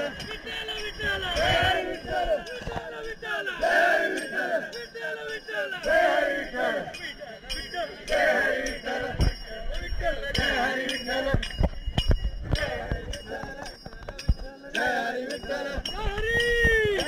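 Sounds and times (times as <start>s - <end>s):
group of voices chanting: 0.0s - 9.3s, 10.2s - 11.5s, 12.6s - 13.7s, 14.7s - 15.9s
small hand cymbals ringing: 0.0s - 17.0s.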